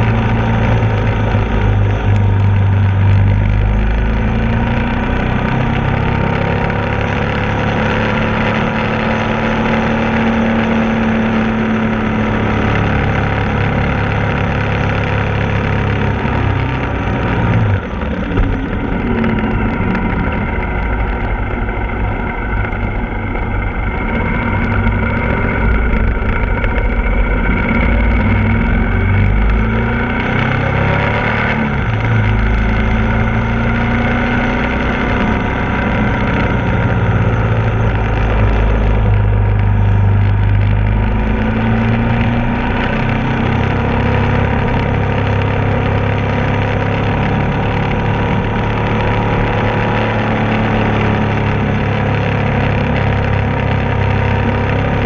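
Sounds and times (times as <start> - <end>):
motorcycle engine running: 0.0 - 55.0
heavy wind noise: 10.8 - 55.0.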